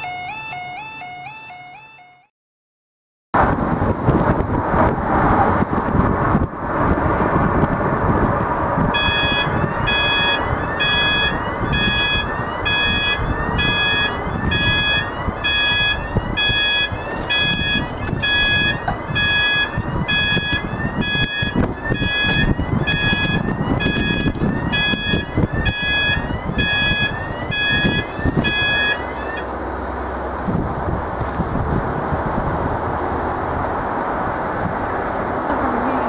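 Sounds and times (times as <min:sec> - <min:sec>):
road traffic rumble: 0:00.0 - 0:02.2, 0:03.4 - 0:36.0
level crossing warning alarm: 0:00.0 - 0:02.3, 0:08.9 - 0:29.6.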